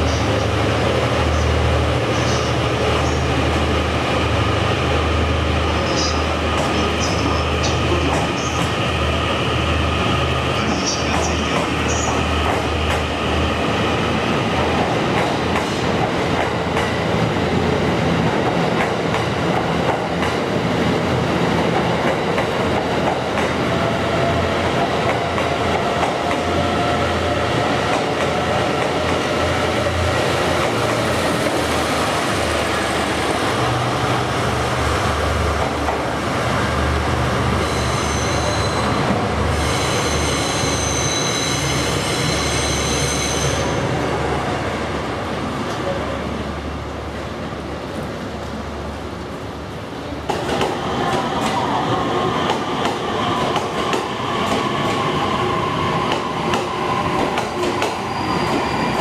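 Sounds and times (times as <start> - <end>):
train wheels rumbling on rails: 0.0 - 59.0
high squeal: 37.6 - 43.8, 57.8 - 59.0.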